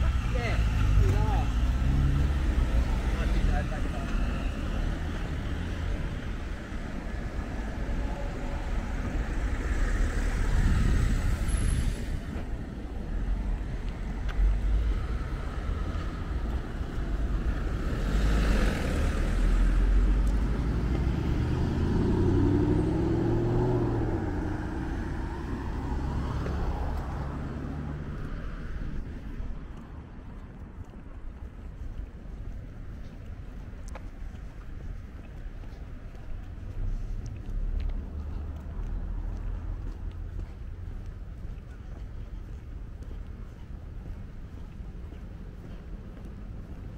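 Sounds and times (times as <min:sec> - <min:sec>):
cars driving past: 0:00.0 - 0:31.0, 0:31.6 - 0:46.9
tyres hissing on road: 0:09.8 - 0:12.4
engine note rising and falling: 0:18.0 - 0:28.1.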